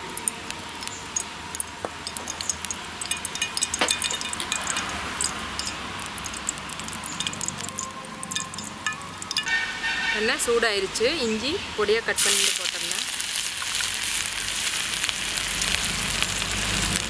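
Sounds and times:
oil pouring into a pan: 0:00.0 - 0:09.5
spoon clinking on steel plate: 0:02.0 - 0:09.6.

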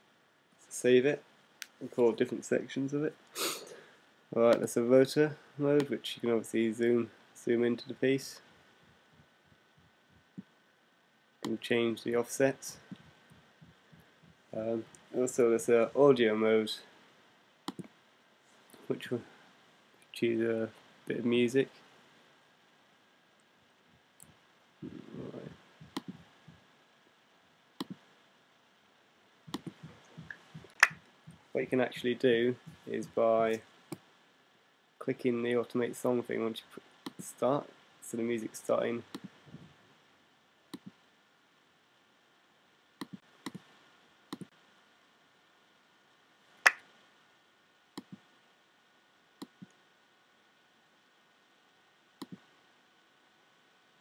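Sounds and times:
soft low rustle: 0:06.5 - 0:10.6, 0:11.5 - 0:17.2, 0:23.8 - 0:26.8, 0:29.4 - 0:33.8, 0:39.1 - 0:39.9
computer mouse clicks: 0:17.7 - 0:17.9, 0:25.8 - 0:26.2, 0:27.8 - 0:28.0, 0:29.5 - 0:31.0, 0:40.7 - 0:40.9, 0:43.0 - 0:43.6, 0:52.2 - 0:52.4
mouse button clicking: 0:29.5 - 0:29.8.

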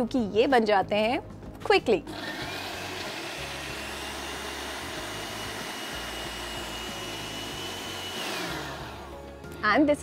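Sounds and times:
blender motor whine: 0:02.1 - 0:09.3.

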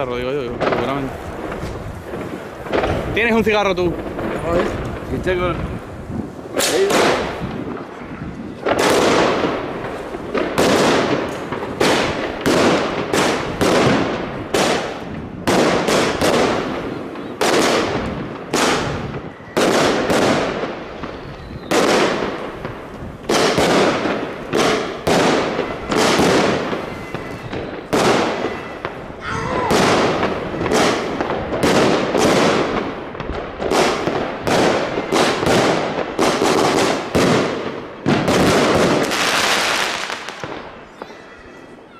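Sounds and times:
firework bangs: 0:00.0 - 0:41.9.

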